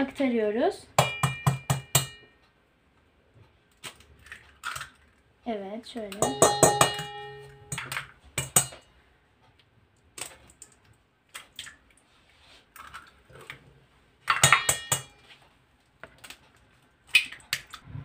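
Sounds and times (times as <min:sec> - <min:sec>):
eggs cracked against metal bowl: 0:03.8 - 0:05.1, 0:06.0 - 0:08.8, 0:14.2 - 0:15.2, 0:17.1 - 0:17.8.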